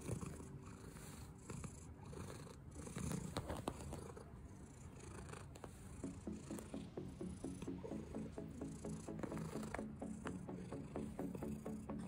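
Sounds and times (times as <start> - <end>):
cat purring: 0.0 - 12.0.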